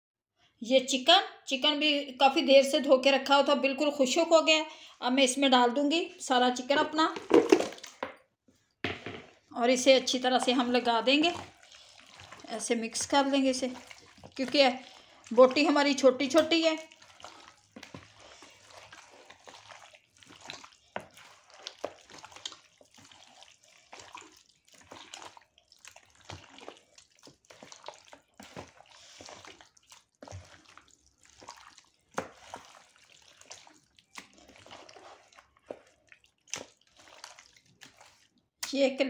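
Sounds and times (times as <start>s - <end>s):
hands kneading wet meat: 9.5s - 39.0s.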